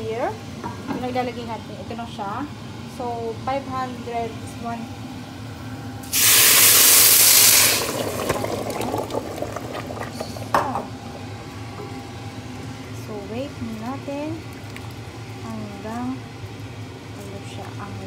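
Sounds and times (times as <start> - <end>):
stock hissing in hot pot: 6.0 - 8.9
bubbling and crackling: 6.2 - 11.7, 13.6 - 18.0.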